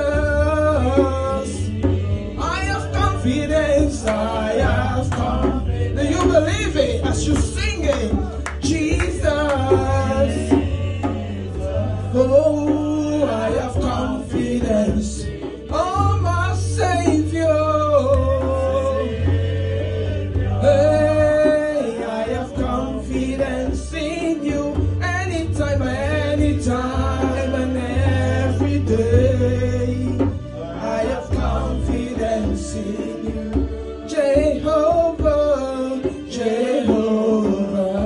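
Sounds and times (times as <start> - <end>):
instrumental accompaniment with bass: 0.0 - 38.0.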